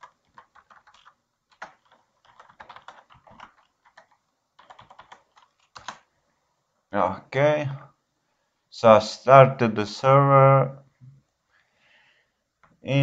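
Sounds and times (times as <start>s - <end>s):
keyboard typing: 0.0s - 6.1s.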